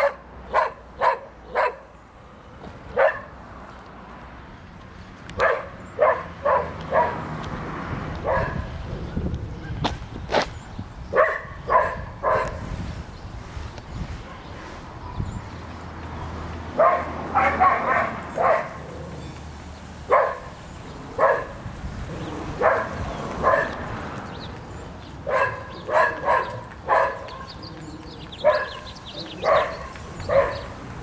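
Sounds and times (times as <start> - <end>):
dog barking: 0.0 - 1.9, 2.9 - 3.3, 5.4 - 7.3, 8.2 - 8.7, 11.1 - 12.6, 16.8 - 18.9, 20.1 - 20.5, 21.2 - 21.6, 22.6 - 23.8, 25.2 - 27.5, 28.4 - 30.8.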